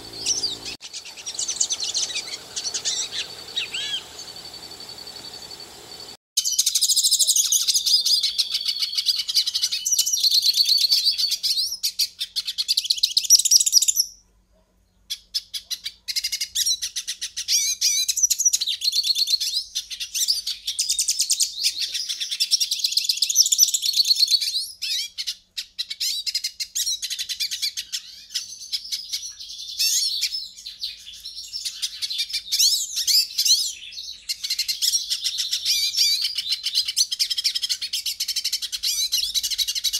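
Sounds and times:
finch singing twittering song: 0.0 - 14.2.

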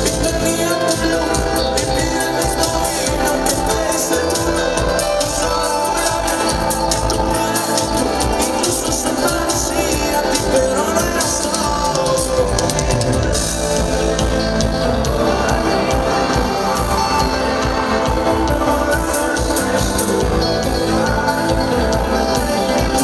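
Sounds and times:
live pop band music: 0.0 - 23.0.

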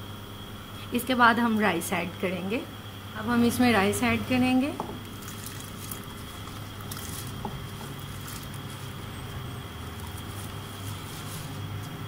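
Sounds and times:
steady low hum: 0.0 - 12.0
rice grains pattering into pot: 4.8 - 12.0.

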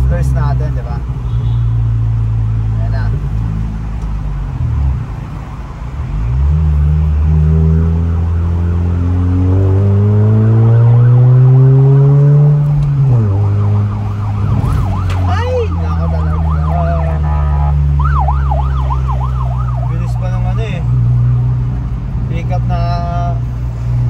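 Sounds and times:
car engine accelerating: 5.9 - 22.3
yelping siren: 7.2 - 12.4, 13.0 - 20.3.

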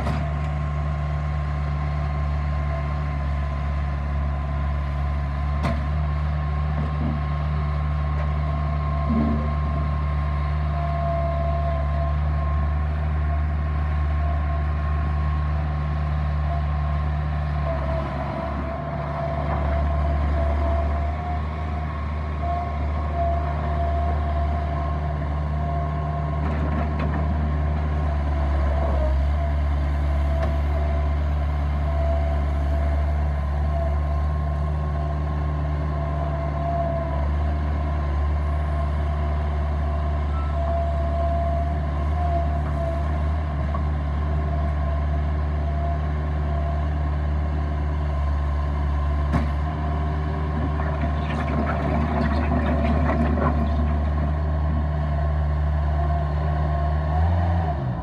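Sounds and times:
diesel engine running under load: 0.0 - 58.0
gravel scraping and rattling: 50.5 - 54.7.

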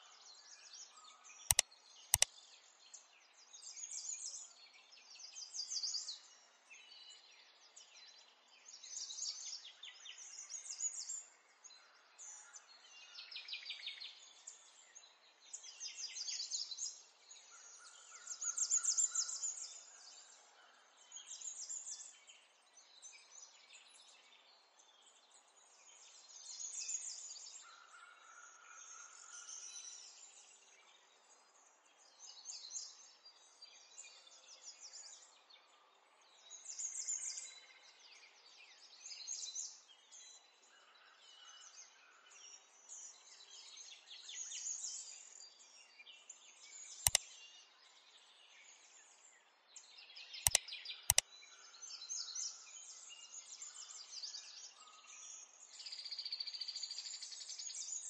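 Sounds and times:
small birds chirping: 1.5 - 3.0, 43.0 - 58.0.

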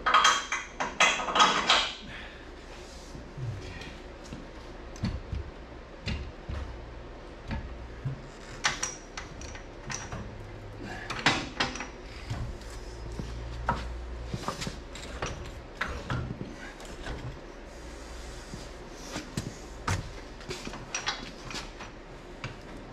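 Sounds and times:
metal parts clanking: 0.0 - 2.0
low steady hum: 0.0 - 22.9.

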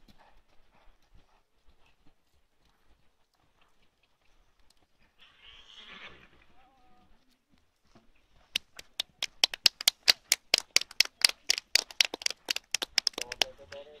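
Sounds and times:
people clapping: 8.6 - 14.0.

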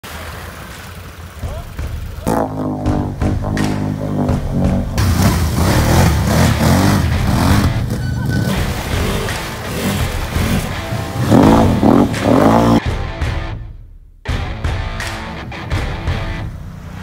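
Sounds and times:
atv engines revving: 0.1 - 12.8, 15.8 - 17.0
music: 2.5 - 5.0, 5.6 - 16.6.

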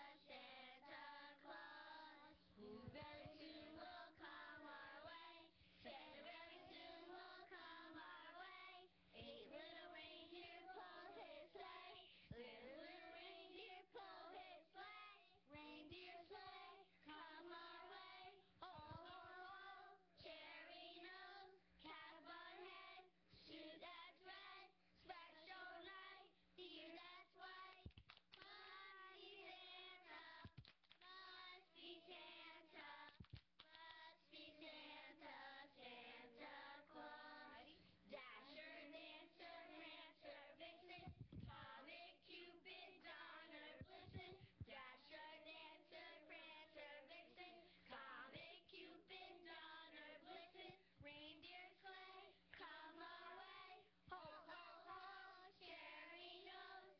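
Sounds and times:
woman singing: 0.3 - 5.2, 9.2 - 21.1.

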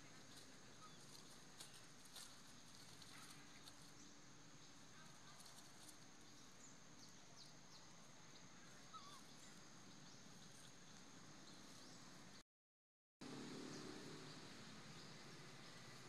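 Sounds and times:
faint bird chirps: 6.2 - 12.2.

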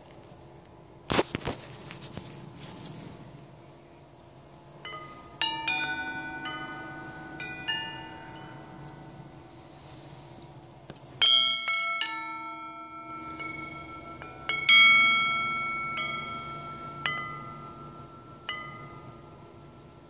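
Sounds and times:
metal wind chime ringing: 4.7 - 20.0.

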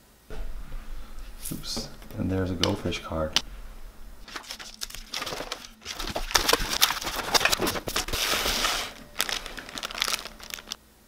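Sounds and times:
crinkling rustle: 0.3 - 10.8
cardboard box being folded: 4.2 - 10.8.

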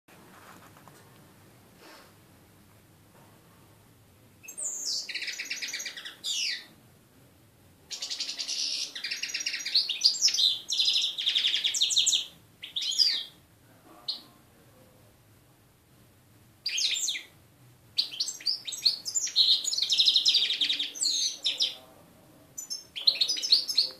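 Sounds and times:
goldfinch singing: 4.4 - 6.7, 7.9 - 13.3, 16.7 - 17.3, 18.0 - 21.8, 22.6 - 23.9.

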